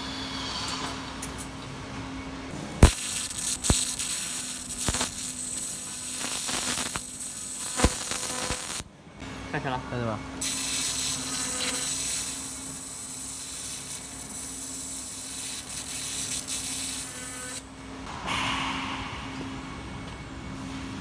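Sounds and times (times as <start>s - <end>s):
laser welder hissing: 2.8s - 8.8s, 10.4s - 17.6s
machine hum: 17.6s - 21.0s.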